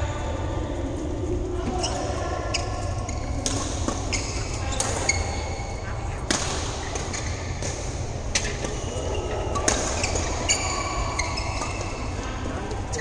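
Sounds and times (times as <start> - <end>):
low hall rumble: 0.0 - 13.0
shoe squeaks on court floor: 1.7 - 6.2, 6.8 - 7.6, 8.3 - 12.2
racket hitting shuttlecock: 3.1 - 12.1.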